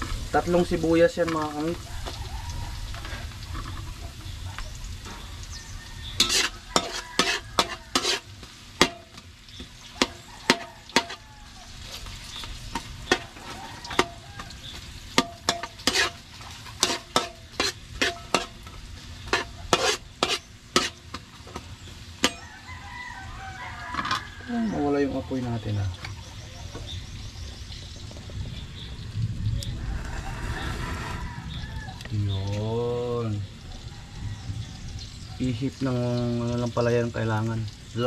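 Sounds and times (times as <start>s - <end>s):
metal spatula scraping wok: 0.0s - 22.6s, 23.7s - 26.2s
onions sizzling in hot oil: 0.0s - 38.0s.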